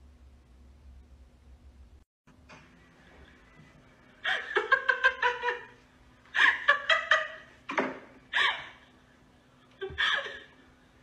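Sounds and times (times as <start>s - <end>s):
person giggling: 4.2s - 7.5s, 9.7s - 10.6s.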